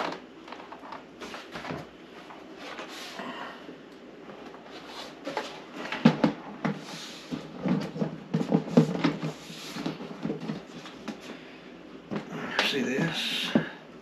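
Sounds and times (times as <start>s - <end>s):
plastic knocks and clatters: 5.3s - 11.2s.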